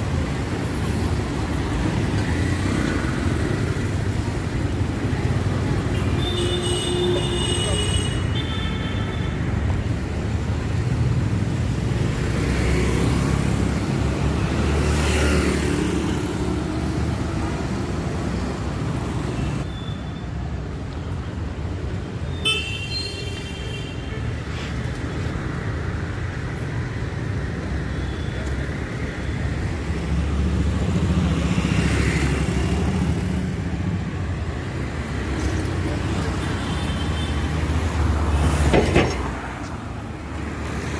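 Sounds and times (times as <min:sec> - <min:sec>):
traffic rumble: 0:00.0 - 0:40.9
vehicles passing: 0:00.0 - 0:40.9.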